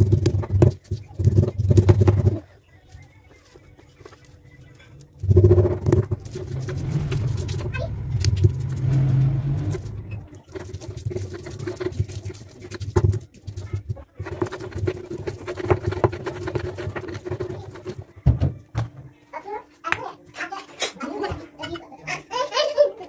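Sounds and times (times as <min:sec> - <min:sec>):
pestle grinding in stone mortar: 0:05.2 - 0:18.1
loud low rumble: 0:05.7 - 0:10.4.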